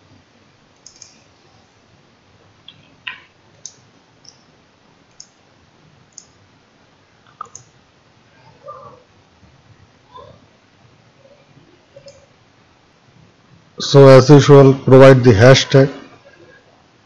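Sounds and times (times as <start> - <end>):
mouse and keyboard clicks: 0.8 - 1.2, 7.3 - 7.7.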